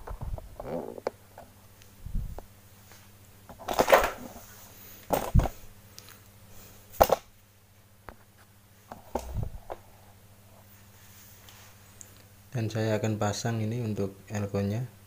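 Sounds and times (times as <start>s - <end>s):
faint steady hum: 0.0s - 15.0s
knocks and rustles of handling: 2.8s - 6.2s.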